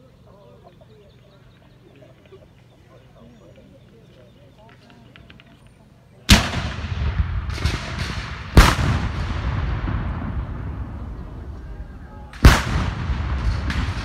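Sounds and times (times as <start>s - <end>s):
cannon blasts: 6.3s - 11.6s, 12.3s - 14.0s
long rolling rumble: 6.7s - 14.0s.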